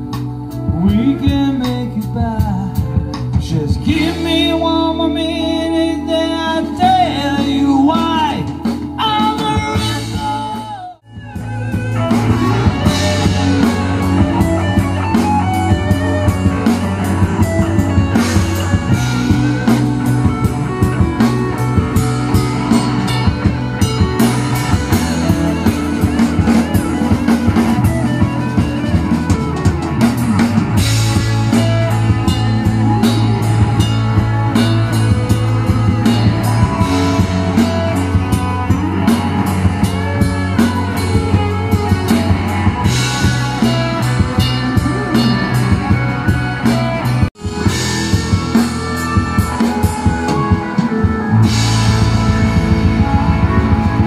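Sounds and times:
bass guitar: 0.0 - 54.0
drum kit beat: 0.0 - 54.0
electric guitars: 0.0 - 54.0
person singing: 0.1 - 11.2, 31.2 - 54.0.

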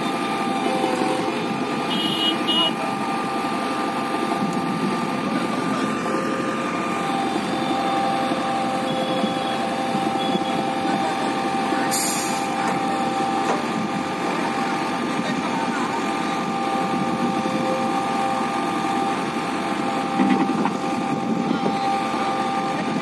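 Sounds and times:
hydraulic whine: 0.0 - 14.8
diesel engine running: 0.0 - 23.0.

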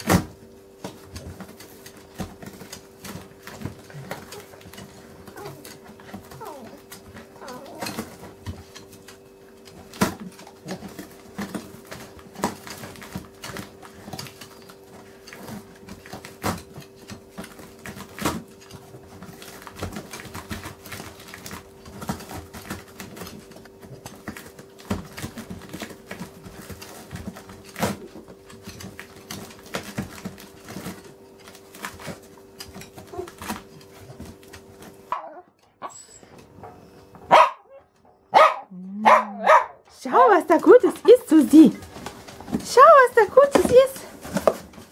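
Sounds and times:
dog tearing cardboard: 0.0 - 35.1, 40.6 - 44.9.

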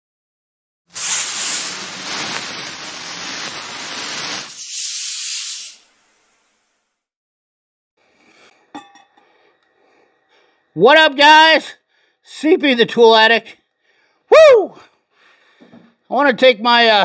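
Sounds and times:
loud steady hiss: 0.9 - 6.6.

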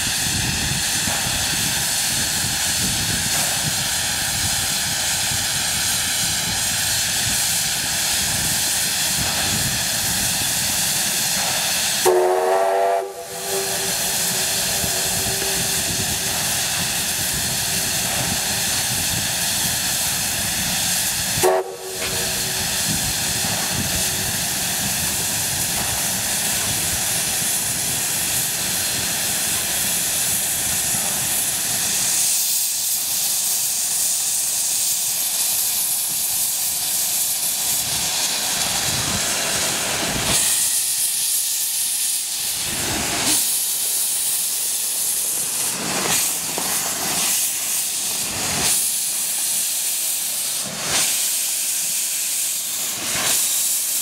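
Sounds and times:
steam blasting from drain cocks: 0.0 - 54.0
steam hissing: 0.0 - 54.0
steam whistle blasts: 12.0 - 16.6, 21.4 - 22.7.

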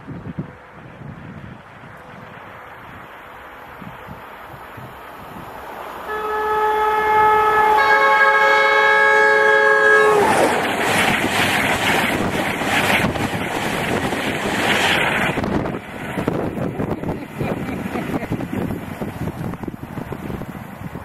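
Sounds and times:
wind on microphone: 0.0 - 3.1, 3.7 - 5.7, 9.6 - 21.0
train coaches rushing past: 0.1 - 21.0
locomotive two-tone horn: 6.1 - 10.5.

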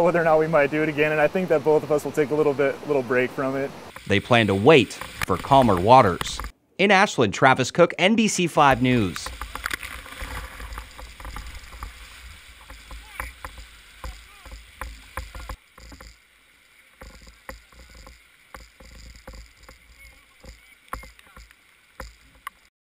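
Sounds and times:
rushing water rumble: 0.0 - 6.5, 8.6 - 22.7
oars knocking in oarlocks: 8.7 - 16.2, 17.0 - 22.7.

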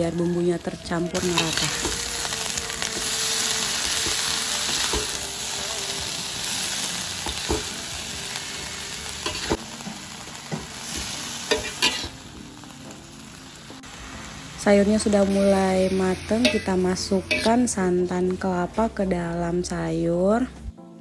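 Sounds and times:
greens sizzling in hot oil: 0.0 - 18.0
metal spatula scraping pan: 16.2 - 17.7.

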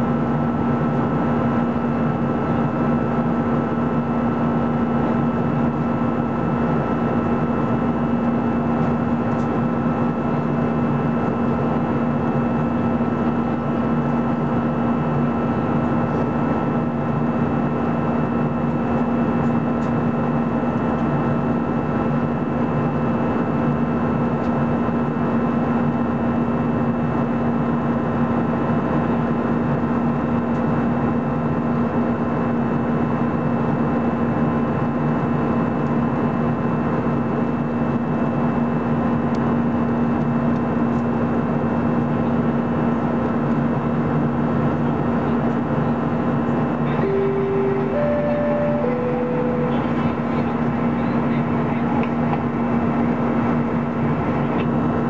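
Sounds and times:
constant low hum: 0.0 - 32.5, 42.0 - 55.0
jet engines and airflow drone: 0.0 - 55.0
faint high steady tones: 46.9 - 51.4.

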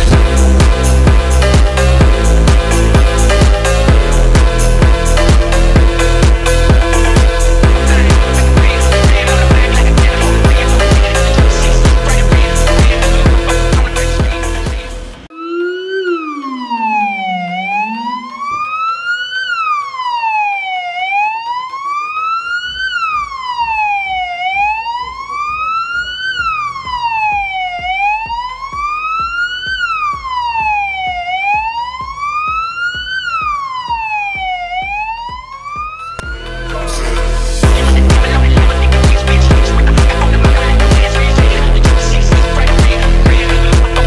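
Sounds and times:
siren wailing: 2.7 - 9.6, 15.2 - 37.3
lower siren tone: 15.2 - 36.8.

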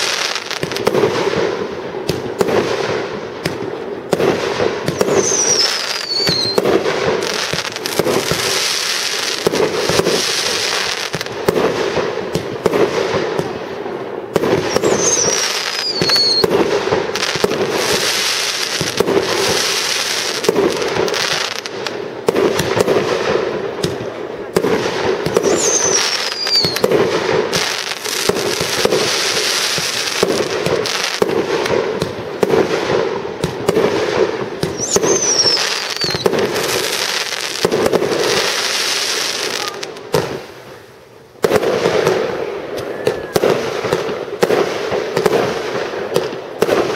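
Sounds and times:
fireworks bangs and crackling: 0.0 - 46.9
high falling whistle: 4.9 - 6.6, 14.7 - 16.4, 25.4 - 26.8, 34.7 - 36.3.

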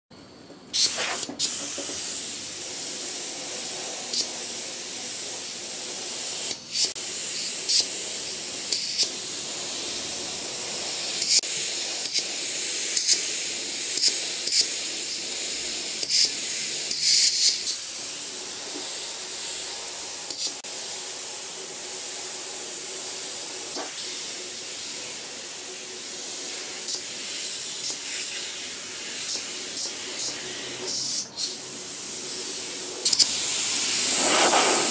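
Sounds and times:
airbrush spraying hiss: 0.7 - 34.9.

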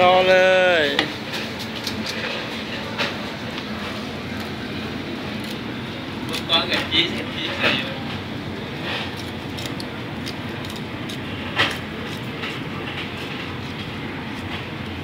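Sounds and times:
low mechanical rumble: 0.0 - 15.0.

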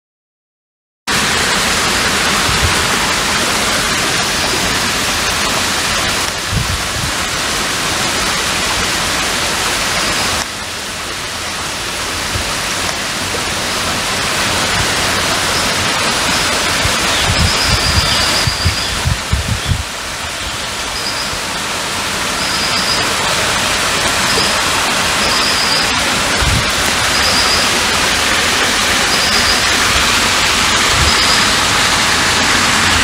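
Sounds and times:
loud rushing hiss: 1.1 - 33.0
thin high whistle: 20.9 - 21.4, 22.4 - 23.2, 25.2 - 26.0, 27.1 - 27.8, 29.0 - 29.8, 31.0 - 31.5.

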